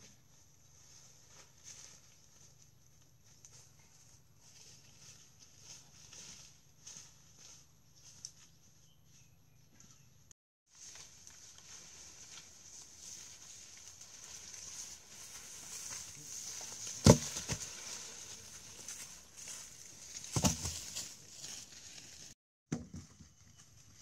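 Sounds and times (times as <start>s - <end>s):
footsteps in dry leaves: 0.3s - 9.2s, 10.7s - 22.4s
wooden poles thudding on ground: 16.8s - 17.8s, 20.2s - 21.1s, 22.7s - 23.2s.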